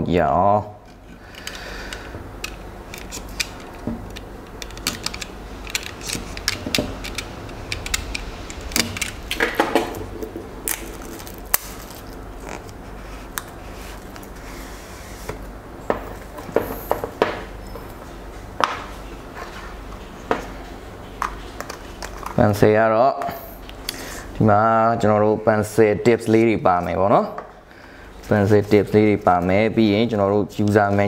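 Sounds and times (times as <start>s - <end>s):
hands opening cardboard packaging: 10.2s - 14.4s.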